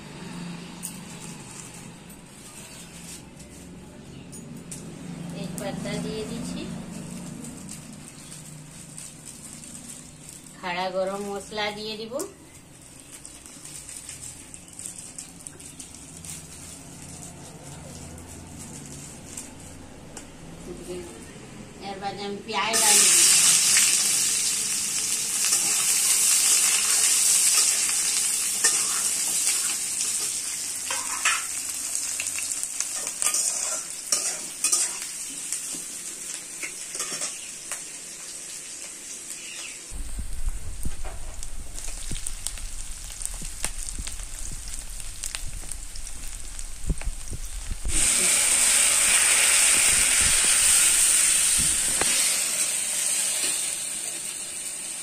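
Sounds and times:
onions sizzling in hot oil: 5.1s - 20.3s, 21.8s - 55.0s
metal spatula scraping and clinking: 28.6s - 32.0s, 32.9s - 35.8s, 36.6s - 37.5s.

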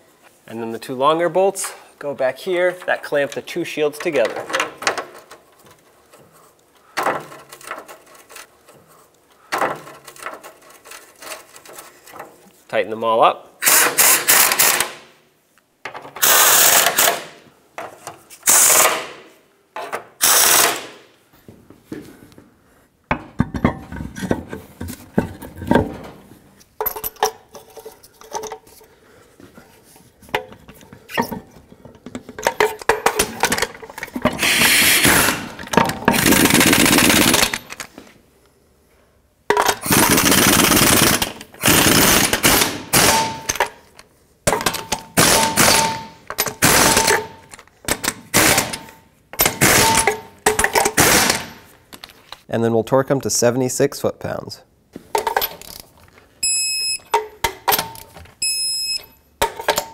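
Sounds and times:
power tool hammering rattle: 34.3s - 37.7s, 39.8s - 43.5s.

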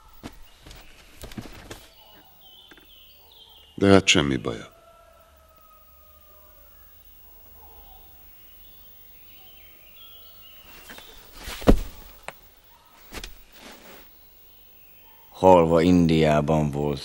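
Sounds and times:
dull thud against wall: 11.4s - 12.1s.

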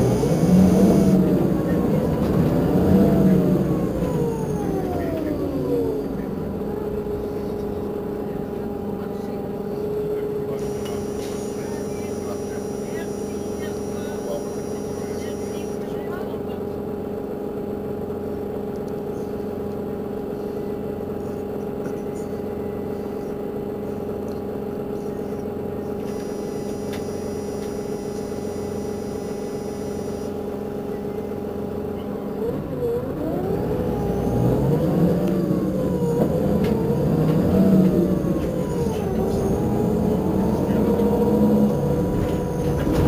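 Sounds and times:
engine with rising and falling pitch: 0.0s - 16.7s, 25.9s - 43.0s
diesel engine idling: 0.0s - 43.0s.

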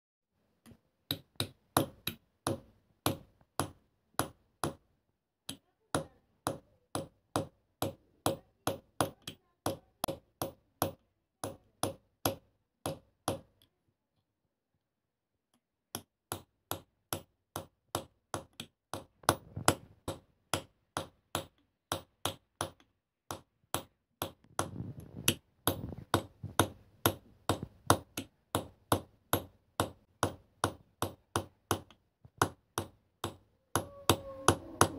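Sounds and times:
hammer tapping chisel on metal: 25.3s - 34.9s.

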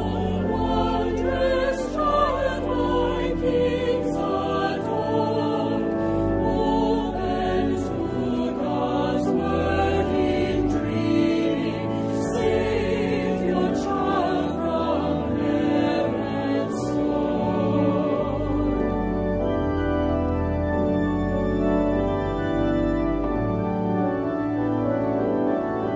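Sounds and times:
choir singing a hymn: 0.0s - 20.6s
organ accompaniment: 0.0s - 25.9s.

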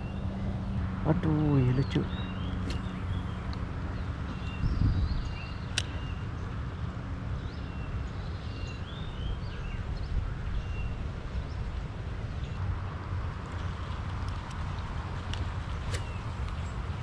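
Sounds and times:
birds chirping: 0.0s - 6.6s, 13.5s - 17.0s
sharp click: 2.6s - 3.0s, 5.7s - 6.0s.

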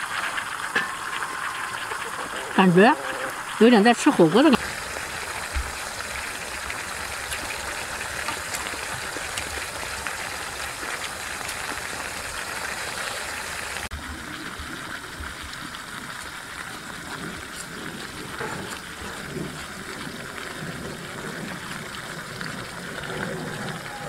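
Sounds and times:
food sizzling in a pan: 0.0s - 24.0s.

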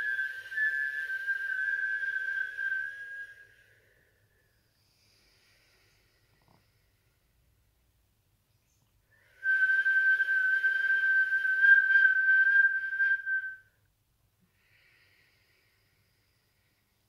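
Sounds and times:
whistled breath: 0.0s - 6.1s, 8.7s - 13.8s.

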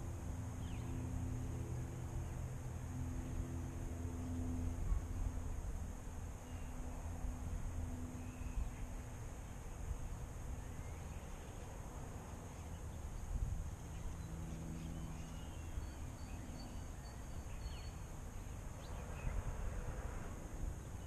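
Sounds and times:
low outdoor rumble: 0.0s - 21.0s
small birds chirping: 0.5s - 1.1s, 10.5s - 19.5s.

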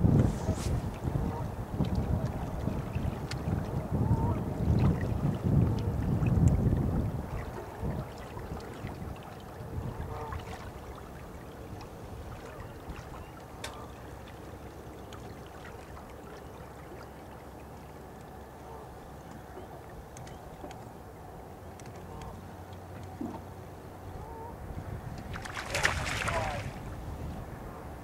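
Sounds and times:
wind buffeting microphone: 0.0s - 13.3s, 23.2s - 28.0s
water lapping at boat: 0.0s - 28.0s.

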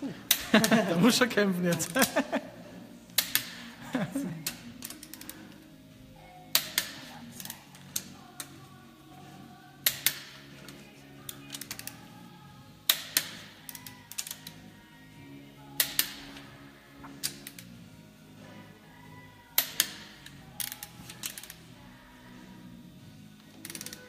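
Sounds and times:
wrench ratchet clicks: 3.2s - 3.6s, 4.4s - 5.4s, 6.5s - 8.5s, 9.8s - 10.5s, 11.3s - 12.0s, 12.9s - 14.6s, 15.8s - 16.4s, 17.2s - 17.7s, 19.6s - 21.6s, 23.5s - 24.0s.

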